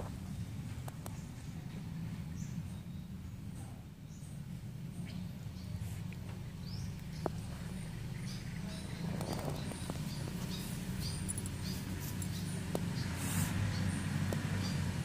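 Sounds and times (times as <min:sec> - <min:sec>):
steady low hum: 0:00.0 - 0:15.0
grass rustling: 0:05.8 - 0:14.6.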